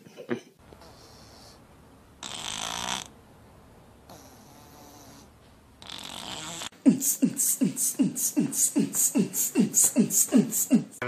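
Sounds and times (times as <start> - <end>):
breathy hiss: 0.6 - 3.2, 4.0 - 11.0
beatbox rhythm: 5.8 - 11.0.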